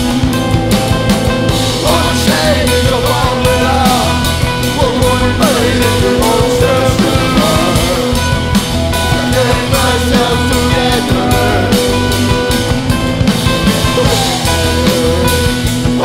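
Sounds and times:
bass guitar: 0:00.0 - 0:16.0
drums: 0:00.0 - 0:16.0
electric guitar: 0:00.0 - 0:16.0
man singing into a microphone: 0:01.8 - 0:08.3, 0:09.1 - 0:12.1, 0:13.7 - 0:16.0.

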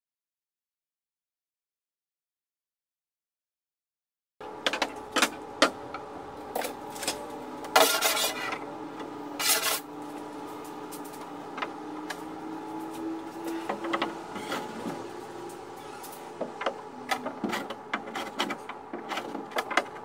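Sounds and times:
faint steady hum: 0:04.4 - 0:20.0
short scrapes: 0:07.8 - 0:08.6, 0:09.4 - 0:09.8.

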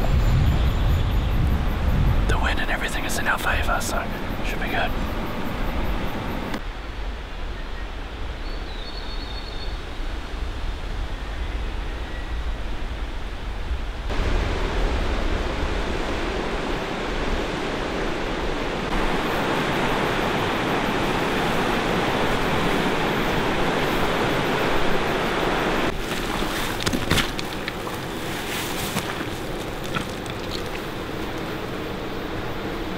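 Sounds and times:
river rushing: 0:14.1 - 0:32.9
footsteps on gravel: 0:25.9 - 0:31.5.

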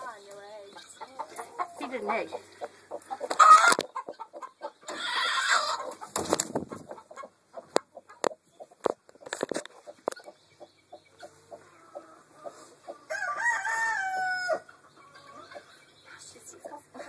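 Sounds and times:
chickens clucking: 0:00.0 - 0:17.0.

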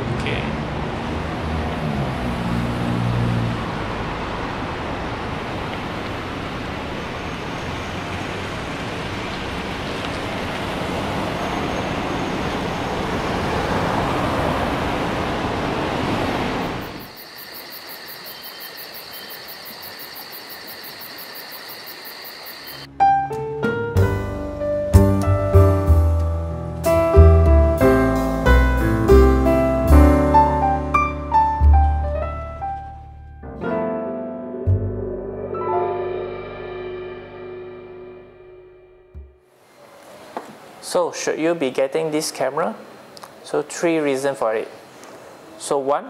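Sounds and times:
road traffic: 0:00.0 - 0:22.9, 0:34.7 - 0:46.0.

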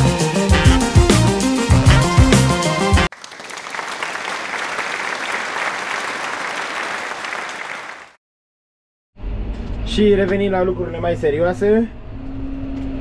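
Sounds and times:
applause: 0:03.0 - 0:08.2.

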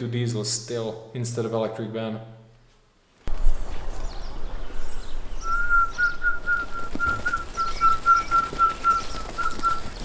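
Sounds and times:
small birds chirping: 0:03.3 - 0:10.0.

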